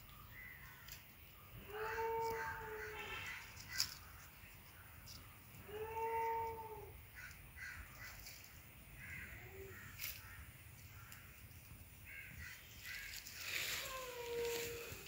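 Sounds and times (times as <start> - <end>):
crows cawing: 1.6 - 4.3, 5.1 - 11.4, 12.0 - 13.7.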